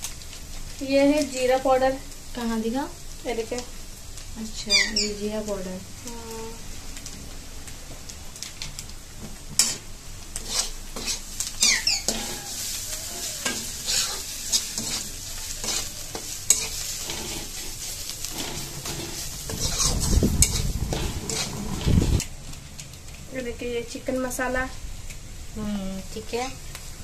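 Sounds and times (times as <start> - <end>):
hot oil sizzling: 0.0 - 27.0
spatula scraping metal pan: 10.4 - 22.2
low rumble: 19.3 - 22.2.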